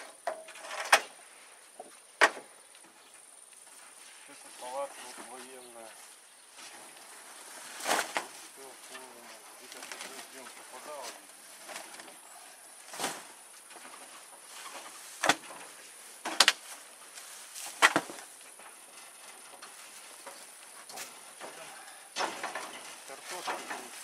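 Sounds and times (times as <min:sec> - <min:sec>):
boards thudding onto wooden bed: 0:14.8 - 0:16.7, 0:17.7 - 0:18.3.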